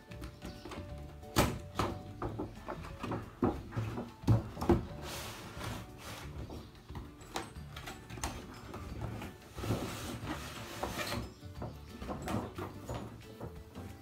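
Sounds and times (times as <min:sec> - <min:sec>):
cardboard rustling and scraping: 0:02.6 - 0:06.8, 0:08.3 - 0:11.4.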